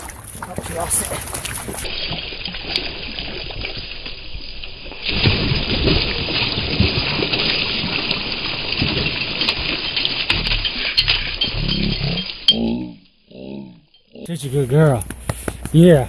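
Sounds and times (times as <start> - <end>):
dog splashing in water: 0.0 - 3.8.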